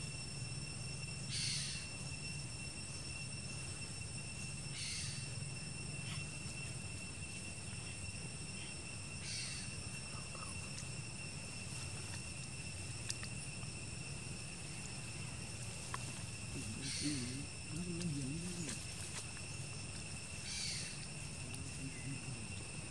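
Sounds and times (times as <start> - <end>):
faint low hum: 0.0 - 22.9
high-pitched insect drone: 0.0 - 22.9
faint clicks: 13.0 - 13.4.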